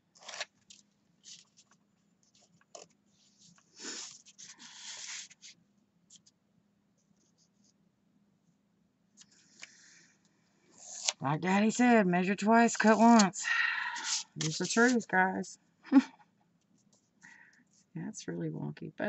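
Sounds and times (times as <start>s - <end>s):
paper scraping and rustling: 0.1s - 6.3s, 10.8s - 11.7s, 12.6s - 15.1s.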